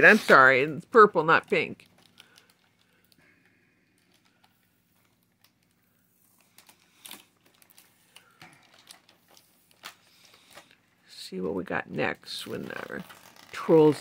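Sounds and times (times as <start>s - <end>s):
plastic packaging rustling: 1.4s - 3.2s, 3.8s - 10.8s, 12.4s - 14.0s.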